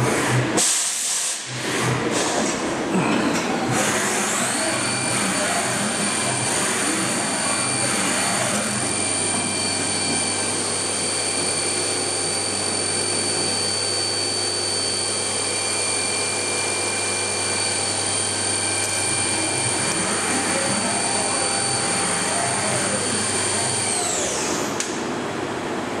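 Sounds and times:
machine noise hiss: 0.6 - 2.6
machine spindle whine: 1.4 - 25.9.

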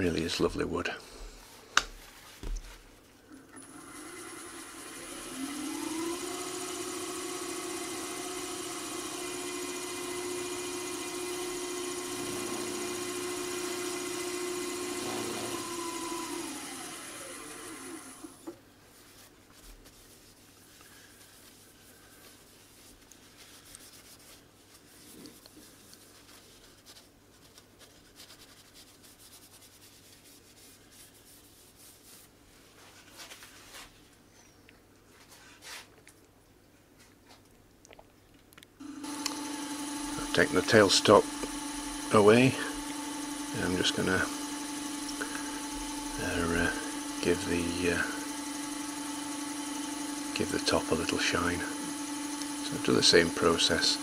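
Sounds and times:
wood lathe whining: 3.5 - 18.6, 38.8 - 54.0.

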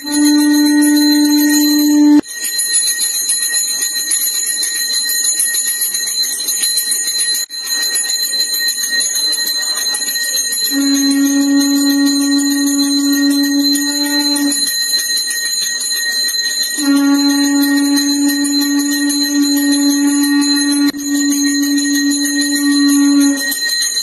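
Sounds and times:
low pitched held tone: 0.0 - 2.2, 10.7 - 14.7, 16.8 - 23.6
hand bell ringing: 0.0 - 24.0.

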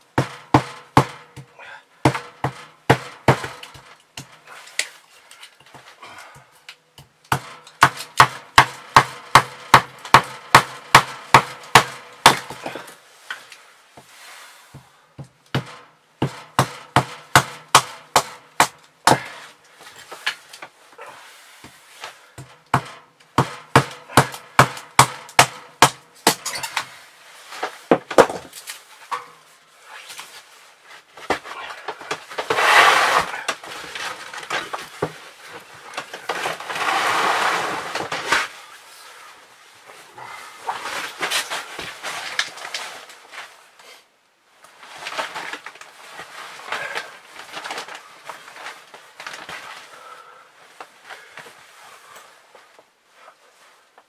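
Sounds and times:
rustling: 26.6 - 50.0.

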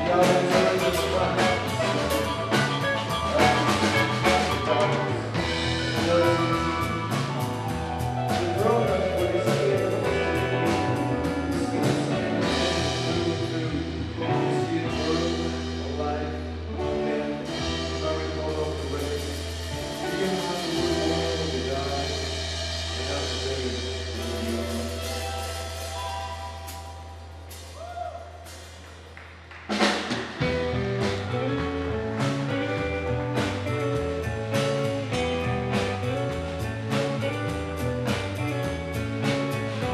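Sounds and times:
person singing: 0.0 - 22.1
electric guitar: 0.0 - 27.2, 30.3 - 39.9
held low bass note: 0.0 - 27.9
drums: 0.0 - 39.9
live rock band: 0.0 - 39.9.

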